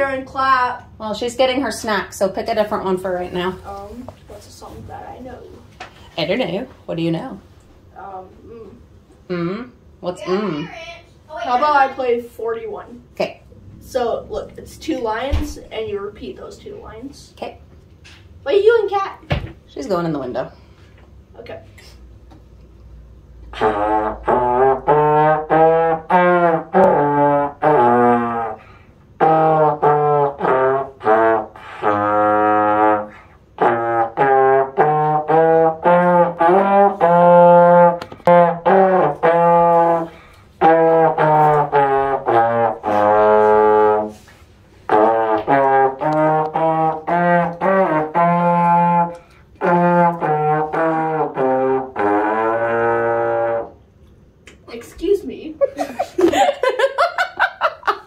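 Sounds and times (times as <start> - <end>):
trombone playing: 23.5 - 53.8.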